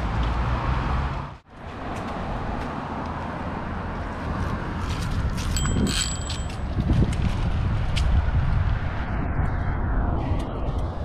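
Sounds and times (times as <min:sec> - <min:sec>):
wind: 0:00.0 - 0:11.0
bicycle rolling noise: 0:04.0 - 0:11.0
high ringing tone: 0:05.6 - 0:06.7.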